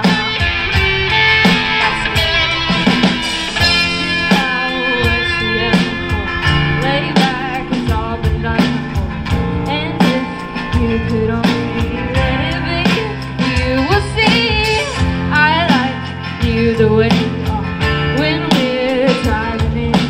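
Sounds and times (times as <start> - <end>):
drum hits: 0.0 - 15.3
live band playing: 0.0 - 20.0.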